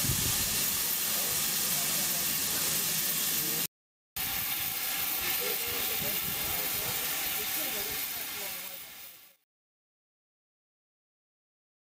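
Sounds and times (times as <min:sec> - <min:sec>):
steam hissing from locomotives: 0:00.0 - 0:09.4.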